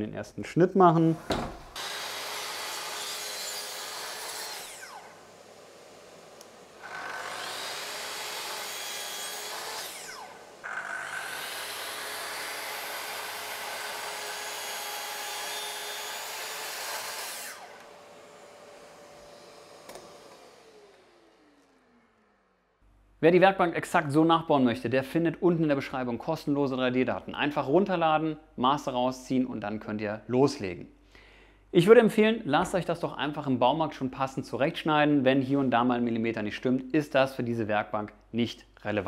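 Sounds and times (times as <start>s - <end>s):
track saw cutting wood: 1.1s - 22.7s
dust extractor humming: 1.2s - 22.5s.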